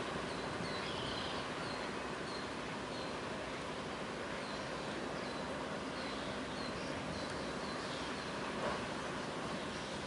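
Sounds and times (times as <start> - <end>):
outdoor background noise: 0.0 - 10.0.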